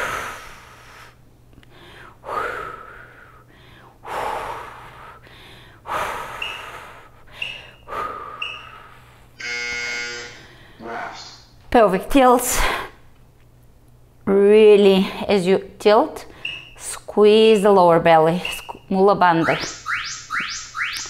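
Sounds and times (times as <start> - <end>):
short high timer beeps: 6.4 - 6.6, 8.4 - 8.6, 16.4 - 16.8.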